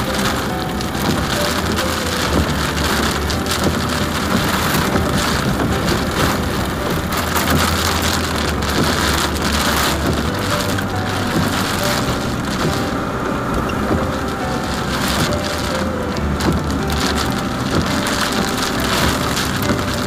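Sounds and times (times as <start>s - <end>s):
car running on road: 0.0s - 20.0s
heavy rain on car roof: 0.0s - 20.0s.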